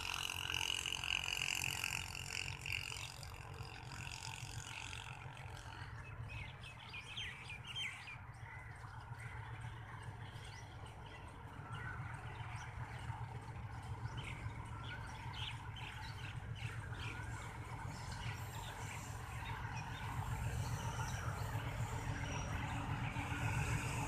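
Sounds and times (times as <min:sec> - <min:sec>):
diesel locomotive rumbling: 0:00.0 - 0:24.0
birds chirping: 0:05.9 - 0:24.0.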